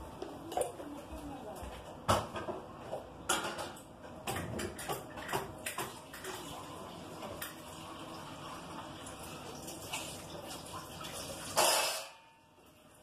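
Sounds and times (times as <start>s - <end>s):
washing machine drum sloshing: 4.4s - 13.0s.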